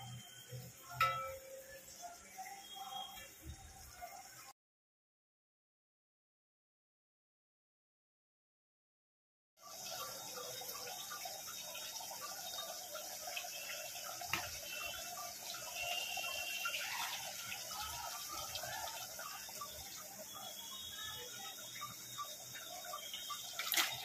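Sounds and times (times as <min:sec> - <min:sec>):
gravy bubbling and sizzling in a pot: 0:00.0 - 0:04.5, 0:09.6 - 0:24.0.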